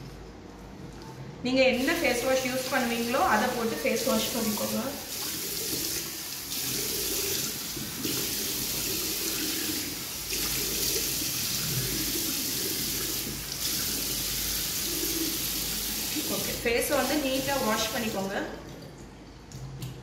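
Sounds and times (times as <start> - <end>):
tap water running into sink: 1.9 - 20.0.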